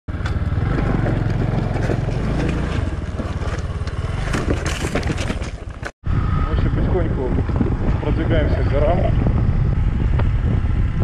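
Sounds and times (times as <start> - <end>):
motorcycle engine running: 0.1 - 5.9
gravel crunching under tyres: 0.1 - 6.0.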